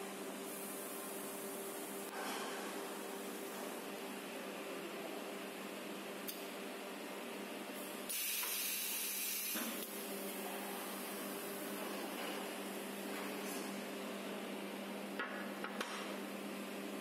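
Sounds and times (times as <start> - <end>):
pneumatic air hiss: 8.1 - 9.8.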